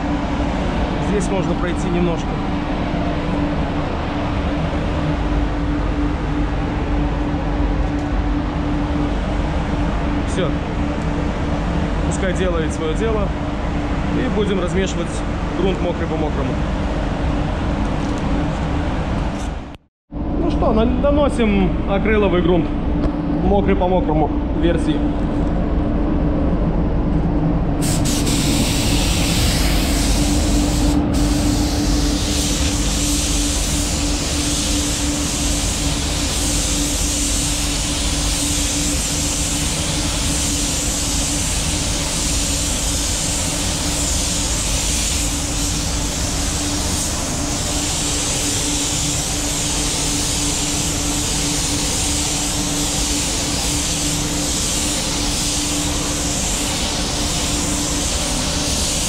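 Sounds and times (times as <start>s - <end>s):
steady low hum: 0.0s - 59.0s
spray gun hissing: 27.8s - 59.0s.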